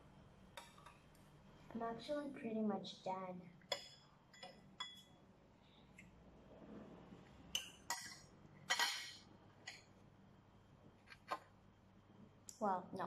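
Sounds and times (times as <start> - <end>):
cutlery clinking on ceramic bowl: 7.6 - 9.9.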